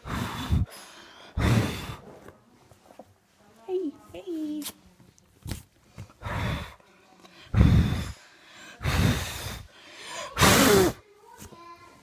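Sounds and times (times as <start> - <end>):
breathy puffs: 0.0 - 2.4, 5.9 - 11.0.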